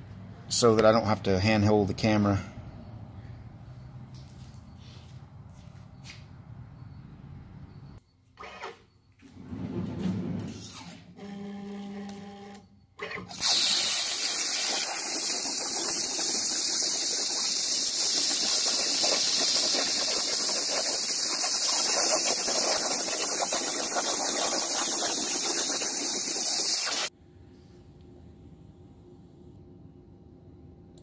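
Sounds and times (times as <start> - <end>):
plasma torch arc hissing: 13.4 - 27.1.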